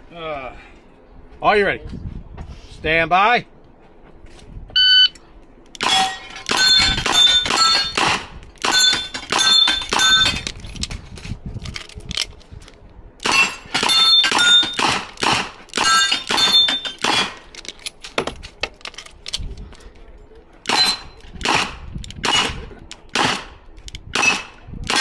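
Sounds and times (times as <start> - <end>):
steel plate ringing: 5.8 - 8.0, 8.6 - 10.4, 13.3 - 14.9, 15.8 - 17.3.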